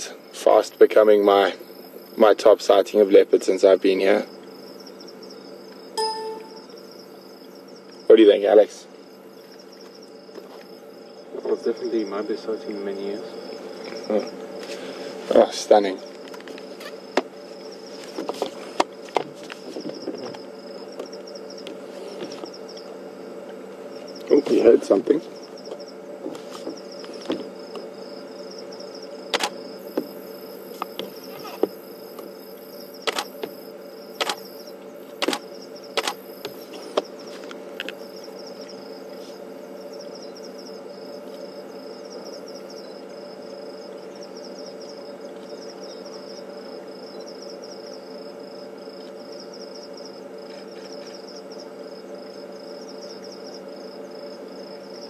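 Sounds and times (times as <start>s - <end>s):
crickets chirring: 0.0s - 55.0s
low steady hum: 4.8s - 7.9s
sharp clicks: 33.1s - 33.3s, 34.2s - 34.4s, 36.0s - 36.2s.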